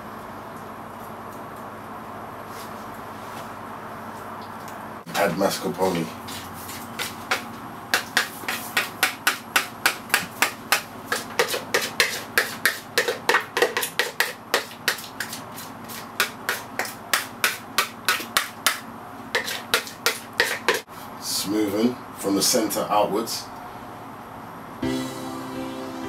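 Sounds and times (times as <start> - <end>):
utensil knocking against a dish: 7.0 - 15.4.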